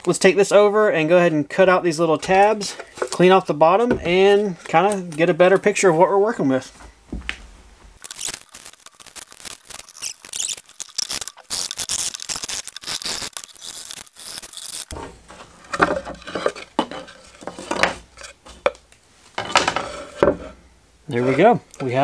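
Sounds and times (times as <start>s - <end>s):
tape peeling off with crackling rip: 8.0s - 15.0s.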